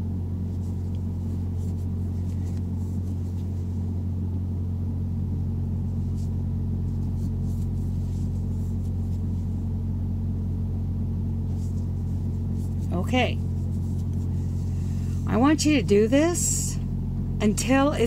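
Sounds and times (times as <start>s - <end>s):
low mechanical hum: 0.0s - 18.0s
crochet hook scratching yarn: 0.5s - 3.8s.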